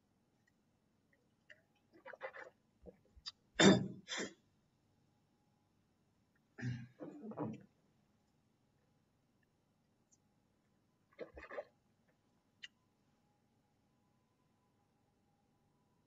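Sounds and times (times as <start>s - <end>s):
person clearing throat: 3.6s - 4.3s, 6.6s - 7.6s
person coughing: 3.6s - 4.3s, 6.6s - 7.5s.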